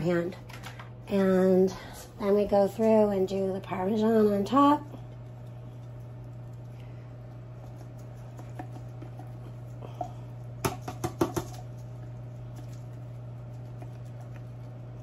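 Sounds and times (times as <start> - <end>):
steady low hum: 0.0 - 15.0
shaker can clicks: 10.6 - 11.7.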